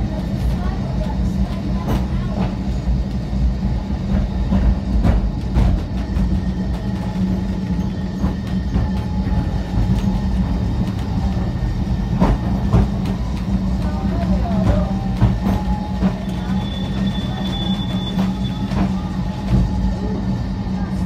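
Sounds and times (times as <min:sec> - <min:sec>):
tram hum and rumble: 0:00.0 - 0:21.0
wheels clicking and knocking: 0:04.0 - 0:19.9.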